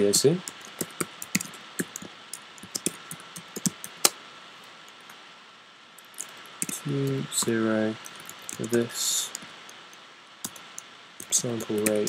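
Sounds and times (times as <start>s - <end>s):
computer keyboard typing: 0.4s - 4.1s, 6.1s - 9.8s, 10.4s - 12.0s.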